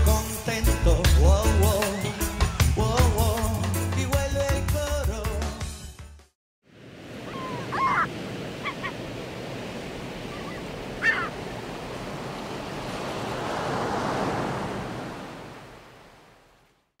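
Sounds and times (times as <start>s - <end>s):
ocean waves rushing: 6.7s - 16.9s.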